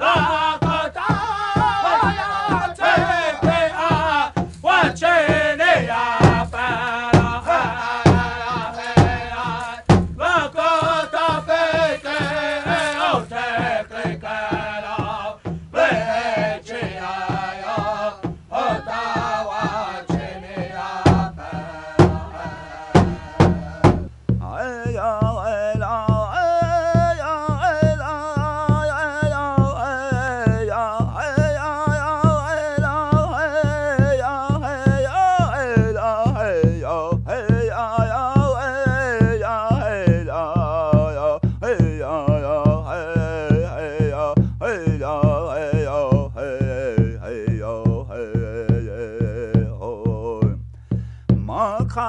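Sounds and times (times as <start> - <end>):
man chanting: 0.0 - 20.8, 21.5 - 50.6
drum beats: 0.0 - 52.0.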